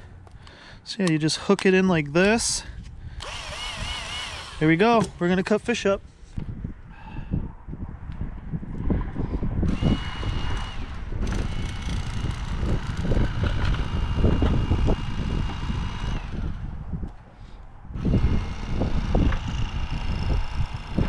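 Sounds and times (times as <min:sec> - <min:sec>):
electric knife motor whining: 0:03.2 - 0:05.1, 0:09.7 - 0:16.8, 0:18.0 - 0:21.0.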